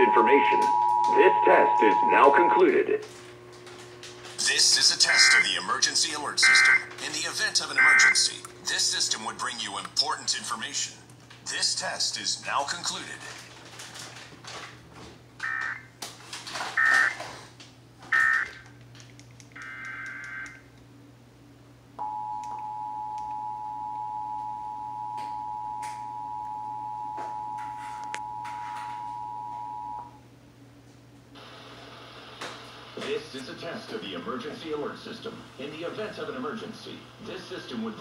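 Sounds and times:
two-tone attention signal: 0:00.0 - 0:02.9.

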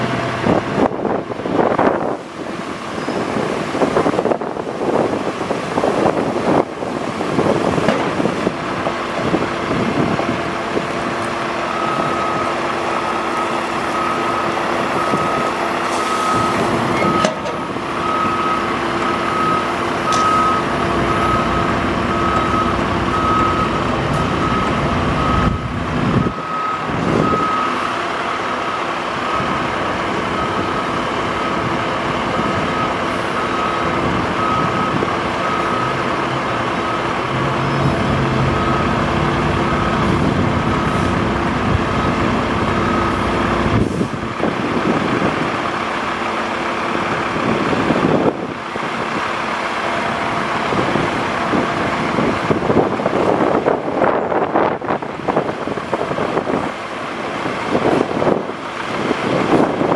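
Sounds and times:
diesel engine running: 0:00.0 - 0:59.9
alarm beeping: 0:11.7 - 0:27.9.

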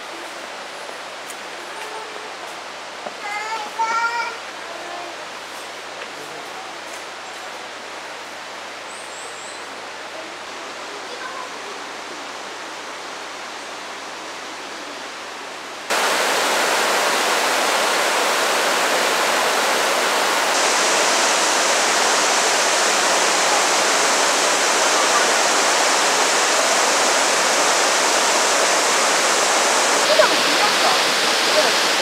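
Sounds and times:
waterfall roaring: 0:09.8 - 0:32.0.

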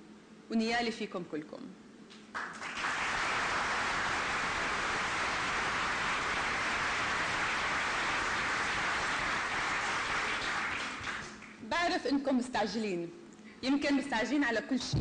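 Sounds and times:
audience applauding: 0:02.3 - 0:11.6.

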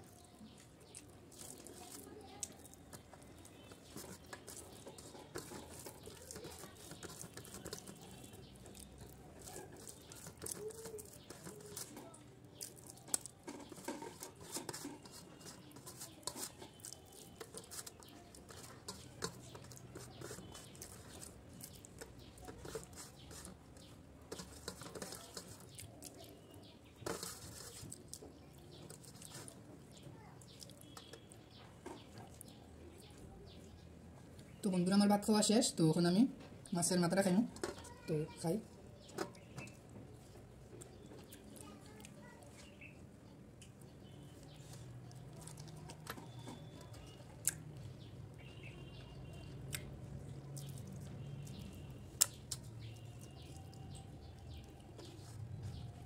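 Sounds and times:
wet chewing mouth clicks: 0:00.0 - 0:27.0, 0:30.4 - 0:33.3, 0:43.6 - 0:48.5, 0:49.1 - 0:55.7
fingers squishing rice on steel plate: 0:00.0 - 0:34.6, 0:37.2 - 0:56.0.

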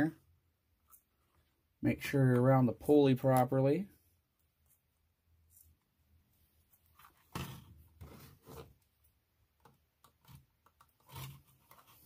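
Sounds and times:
fingers rubbing plastic toy car: 0:10.0 - 0:12.0.

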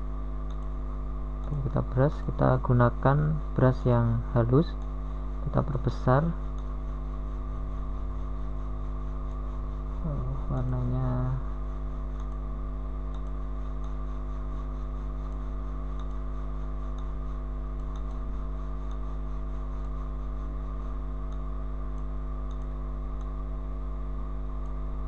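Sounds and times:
electrical hum: 0:00.0 - 0:25.0
computer mouse clicks: 0:00.4 - 0:00.8, 0:04.7 - 0:05.0, 0:05.6 - 0:08.3, 0:11.7 - 0:23.4, 0:24.6 - 0:24.8.

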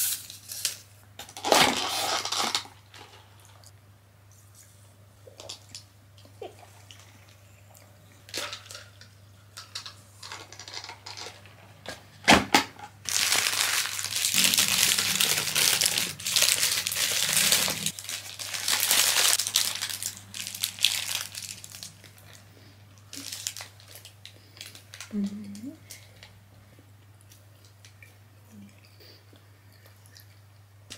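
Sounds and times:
paper wrapper crinkling: 0:13.0 - 0:25.1.

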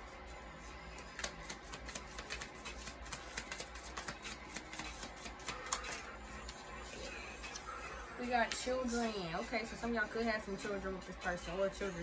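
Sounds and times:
playing cards being shuffled: 0:00.9 - 0:06.6.

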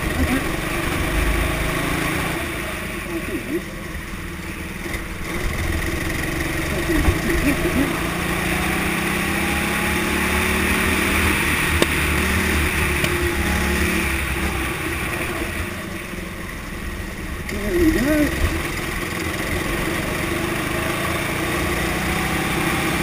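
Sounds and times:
go-kart engine accelerating: 0:00.0 - 0:23.0
wind and road noise: 0:00.0 - 0:23.0
sharp knocks: 0:11.7 - 0:13.3.

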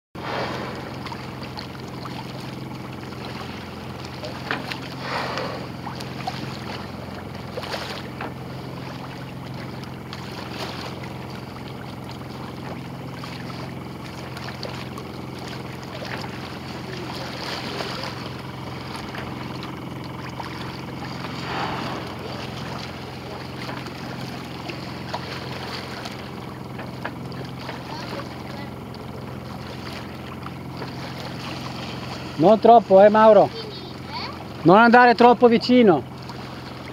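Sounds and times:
boat engine hum: 0:00.2 - 0:36.9
water washing past hull: 0:00.2 - 0:36.9
whooshes: 0:21.3 - 0:22.9.

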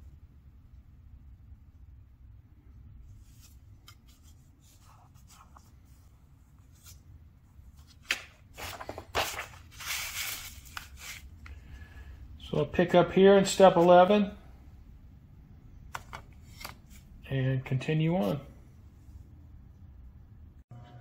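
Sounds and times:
low steady hum: 0:00.0 - 0:21.0
paper pages rustling: 0:03.2 - 0:07.0, 0:07.7 - 0:11.5, 0:15.9 - 0:17.1.

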